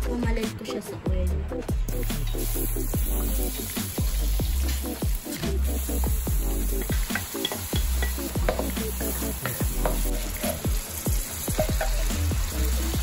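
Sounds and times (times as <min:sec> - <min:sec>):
background music with beat: 0:00.0 - 0:13.0
onions sizzling in butter: 0:02.1 - 0:13.0.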